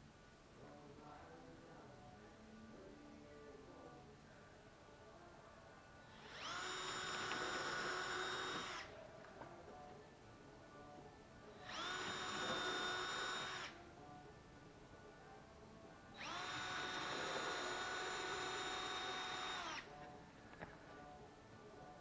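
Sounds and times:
cordless drill motor whine: 6.2 - 8.9, 11.6 - 13.8, 16.2 - 19.9.

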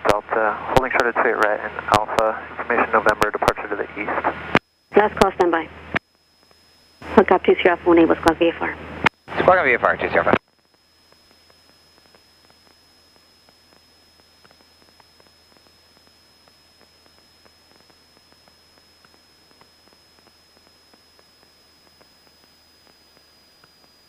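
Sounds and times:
faint low hum: 0.0 - 24.0
high-pitched whine: 0.0 - 24.0
radio hiss: 0.0 - 24.0
faint crackling clicks: 10.3 - 24.0.

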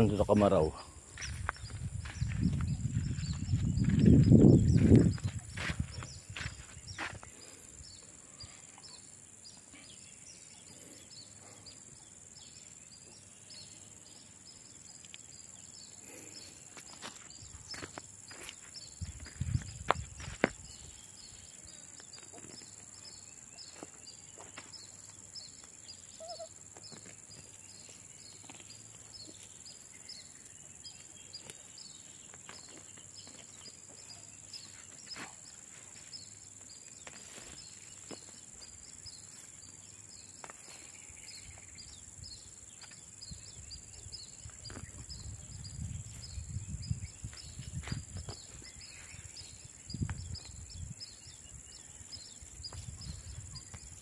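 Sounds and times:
insects chirping and droning: 0.0 - 54.0
footsteps in sandals: 1.1 - 7.4, 16.7 - 20.9, 23.6 - 29.8, 31.4 - 41.7.

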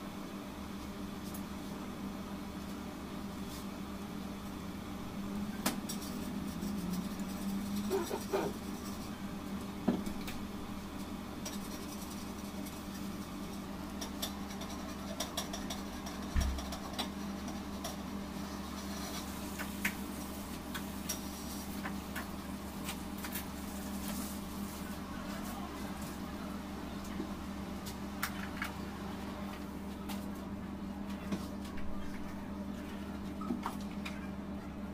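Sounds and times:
steady low hum: 0.0 - 34.9
utensils clicking and tapping: 14.0 - 18.0.

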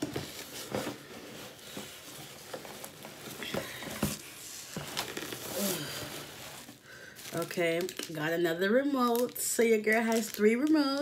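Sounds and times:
soft rustling: 0.0 - 7.7.

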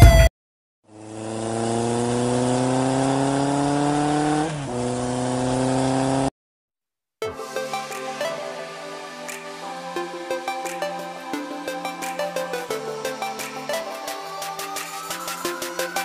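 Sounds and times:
vehicle engine accelerating: 0.9 - 6.3.

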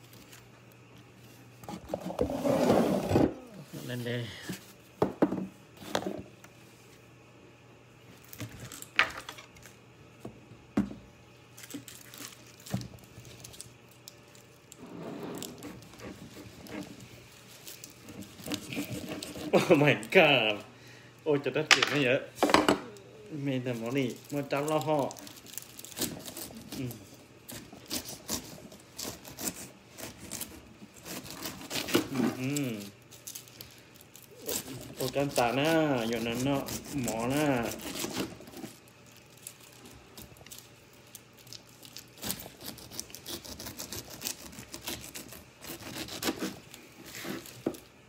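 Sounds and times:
rustling and crinkling handling: 11.5 - 20.7, 21.3 - 48.0
person humming: 32.1 - 32.9.

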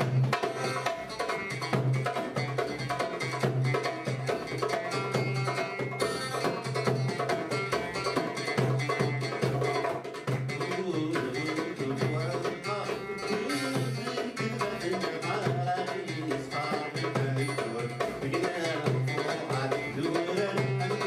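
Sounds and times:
man singing: 10.5 - 21.0.

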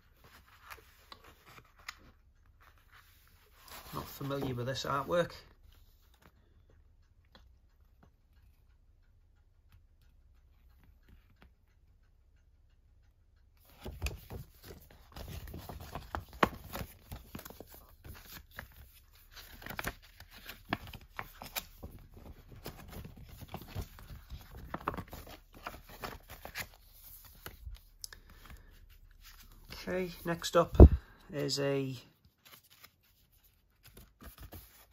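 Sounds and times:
paper and card rustling: 0.1 - 6.3, 13.6 - 34.9.

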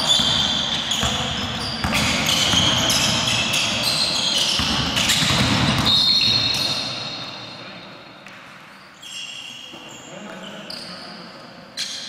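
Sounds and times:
basketball bouncing on wooden floor: 0.0 - 3.5, 4.5 - 6.5
sneaker squeaks: 0.0 - 12.0.

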